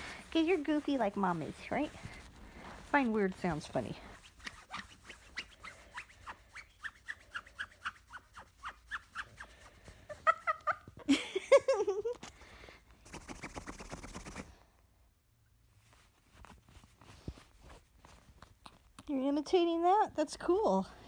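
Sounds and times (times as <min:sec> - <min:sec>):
scratchy rasp: 0:00.0 - 0:09.6
cockatoo laughing chirps: 0:10.1 - 0:12.0.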